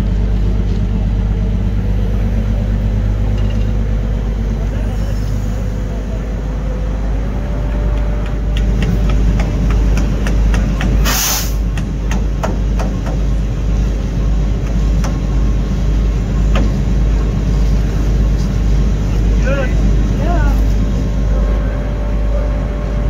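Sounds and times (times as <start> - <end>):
heavy machinery rumbling: 0.0 - 23.0
short loud hiss: 11.0 - 11.6.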